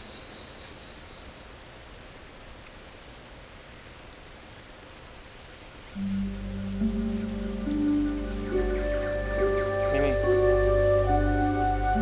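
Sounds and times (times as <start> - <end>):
insects chirring: 0.0 - 12.0
thin high whine: 6.0 - 12.0.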